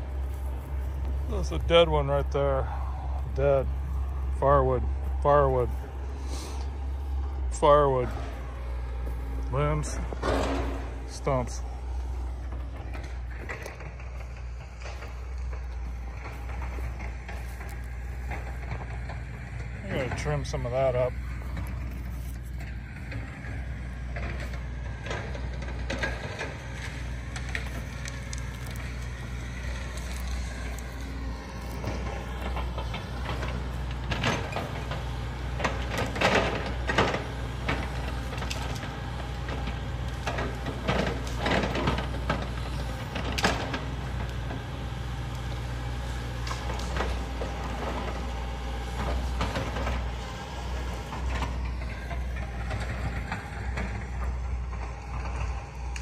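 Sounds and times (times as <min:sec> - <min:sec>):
excavator diesel engine running: 0:00.0 - 0:56.0
sharp metal clanks and knocks: 0:09.6 - 0:11.6.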